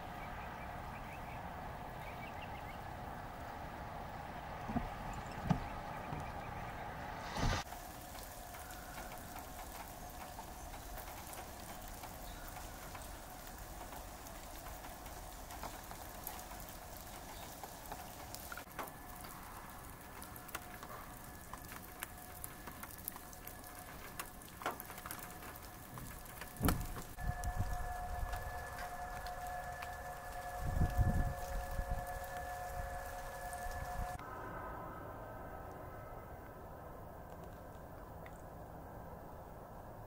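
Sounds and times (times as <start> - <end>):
light rain pattering: 0.0 - 34.6, 35.4 - 40.0
sharp ticks and drips: 7.7 - 34.2.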